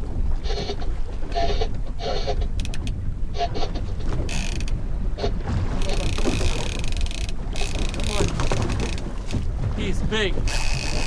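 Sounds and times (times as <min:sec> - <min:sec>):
fishing reel drag buzzing: 0:04.3 - 0:04.7, 0:06.0 - 0:09.0, 0:10.5 - 0:11.0.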